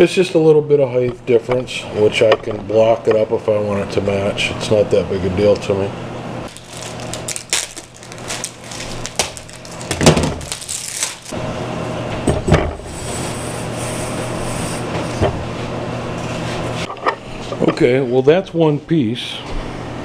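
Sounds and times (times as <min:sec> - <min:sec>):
steady handling noise: 0:14.9 - 0:18.1.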